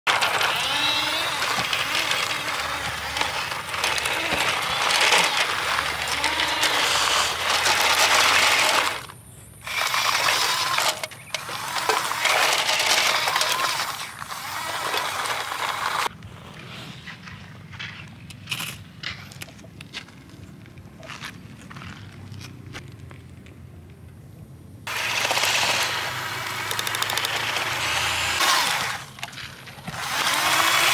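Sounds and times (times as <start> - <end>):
toy truck motors whirring: 0.1 - 16.1, 24.9 - 30.9
tyres crunching on gravel: 0.1 - 23.6, 27.4 - 30.9.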